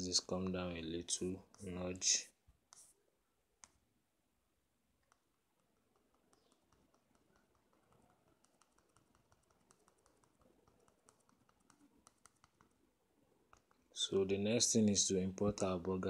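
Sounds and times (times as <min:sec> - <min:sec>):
fingertip taps on touchscreen: 0:05.0 - 0:12.8.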